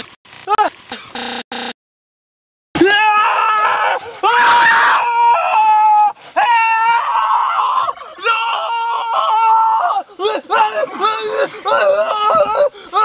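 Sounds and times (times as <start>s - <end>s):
young man screaming: 2.8s - 13.0s.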